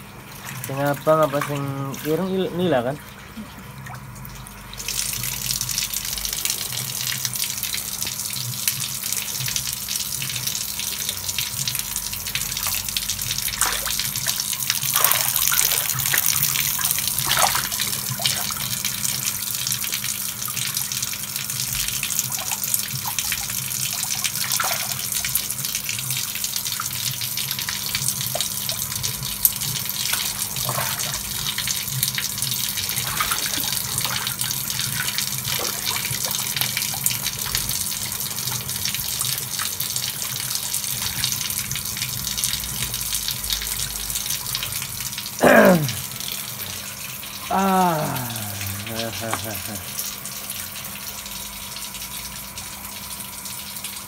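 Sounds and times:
water running and splashing: 0.0s - 54.0s
sharp splashes of thrashing fish: 13.4s - 18.5s.

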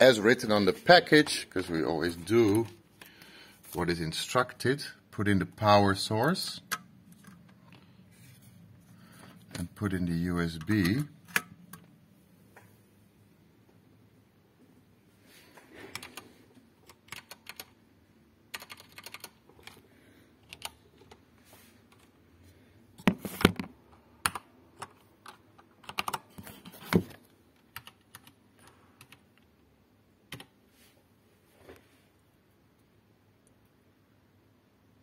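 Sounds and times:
typing on a computer keyboard: 15.9s - 16.2s, 16.8s - 17.8s, 18.5s - 19.8s, 20.4s - 21.2s, 24.2s - 26.4s, 27.6s - 29.5s, 30.3s - 30.5s.

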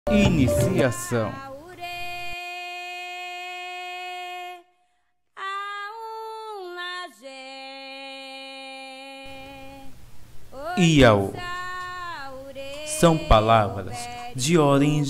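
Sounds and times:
person singing long notes: 0.1s - 2.3s, 12.7s - 14.6s.

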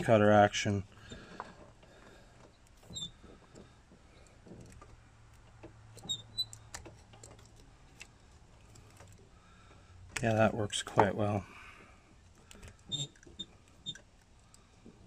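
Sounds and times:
short squeaks: 2.4s - 4.8s, 5.9s - 7.3s, 12.6s - 14.1s.

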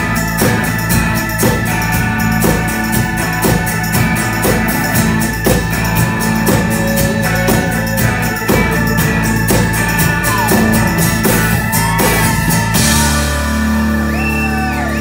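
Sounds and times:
drum kit beat: 0.0s - 14.8s
acoustic guitar: 0.0s - 15.0s
electric guitar: 0.0s - 15.0s.

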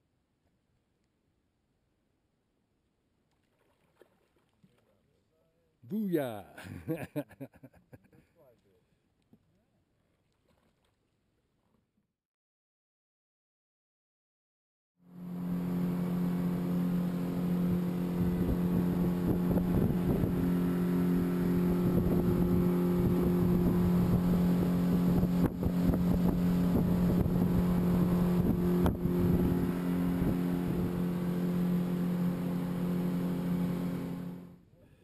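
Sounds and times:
water slapping against hull: 3.3s - 5.0s
outboard motor running: 15.0s - 34.6s
wind buffeting microphone: 18.1s - 31.0s.

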